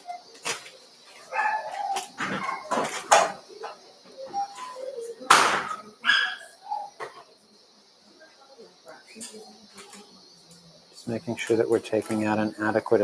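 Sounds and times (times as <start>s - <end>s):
dog barking: 1.3s - 2.7s, 6.0s - 6.9s.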